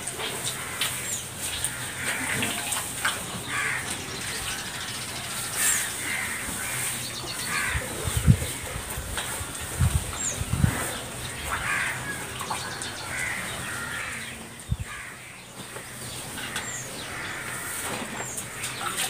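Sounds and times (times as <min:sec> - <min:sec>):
crows cawing: 0:00.4 - 0:04.9, 0:05.6 - 0:07.9, 0:11.3 - 0:18.8.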